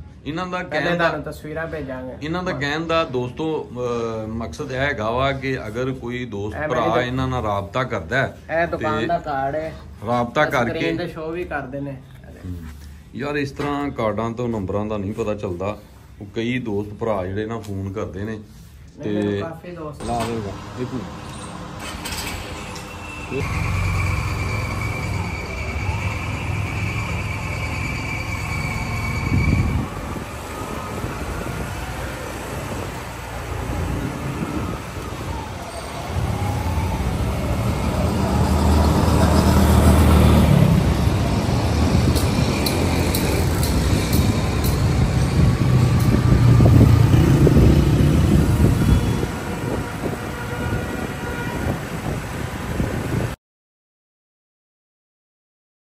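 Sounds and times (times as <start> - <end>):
street traffic noise: 0.0 - 53.4
vehicle engines rumbling: 20.0 - 53.4.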